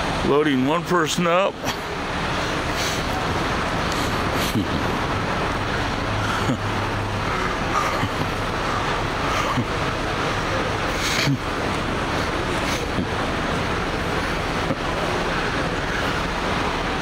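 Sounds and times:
low engine hum: 0.0s - 17.0s
road traffic noise: 0.0s - 17.0s.

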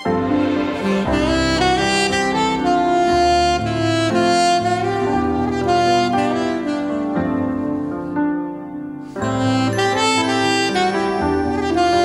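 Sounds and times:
bass line: 0.0s - 7.1s
saxophone melody: 0.0s - 8.2s, 9.0s - 12.0s.

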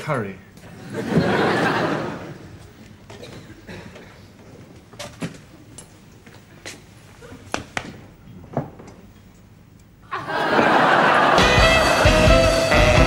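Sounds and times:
incidental music: 11.3s - 13.0s.

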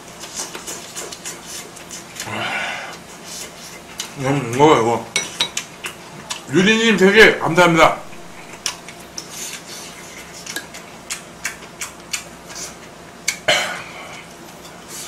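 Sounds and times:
utensils clinking against dishes: 5.1s - 5.6s.

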